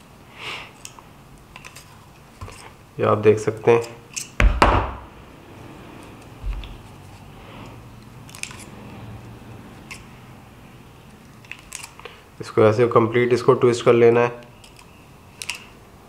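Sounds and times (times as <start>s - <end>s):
pliers clicking on wire: 3.6s - 4.4s, 11.4s - 12.0s, 14.4s - 15.7s
dull thump: 4.4s - 5.1s.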